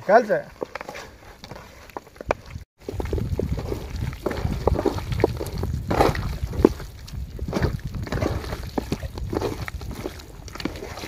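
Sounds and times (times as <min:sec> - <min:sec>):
hands squelching wet marinade: 0:00.0 - 0:11.0.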